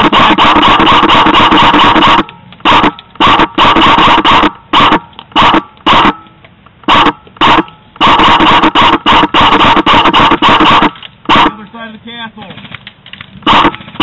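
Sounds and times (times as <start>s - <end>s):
airsoft gun rapid firing: 0.0s - 6.2s, 6.9s - 11.6s, 13.4s - 14.0s.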